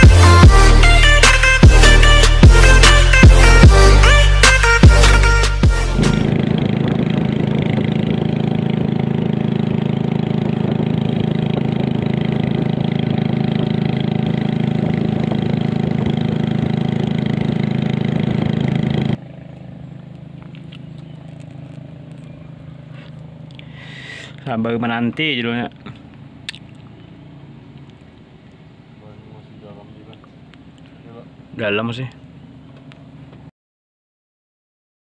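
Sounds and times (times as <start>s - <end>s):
motorboat engine drone: 0.0s - 33.5s
outdoor background noise: 6.4s - 33.5s.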